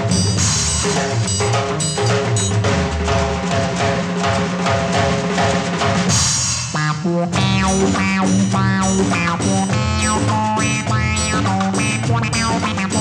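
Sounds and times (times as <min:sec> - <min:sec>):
funk drum kit beat: 0:00.0 - 0:13.0
bass line: 0:06.1 - 0:13.0.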